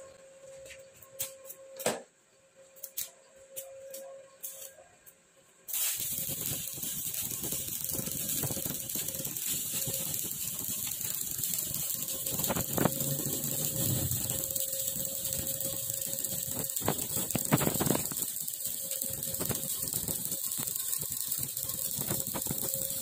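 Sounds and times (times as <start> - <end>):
arc welding crackling: 2.8 - 4.8, 5.7 - 23.0
welding arc pops: 5.7 - 23.0.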